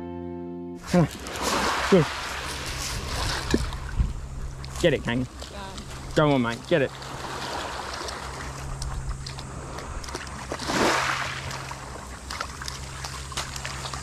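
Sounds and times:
waves lapping on pebble shore: 0.8 - 4.0, 4.6 - 14.0.

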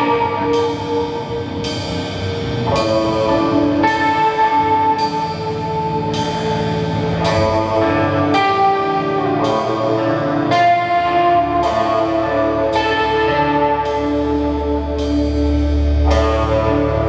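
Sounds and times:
drums with cymbal: 0.0 - 9.9
electric guitar long notes: 0.0 - 17.0.

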